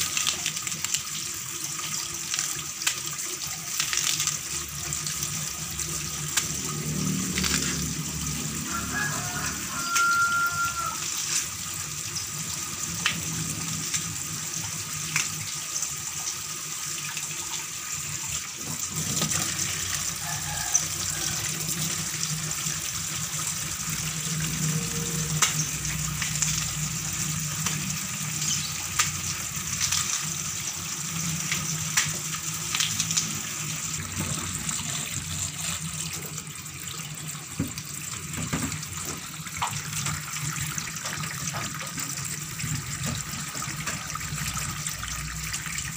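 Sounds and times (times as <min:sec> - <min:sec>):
tap running into steel sink: 0:38.4 - 0:39.8.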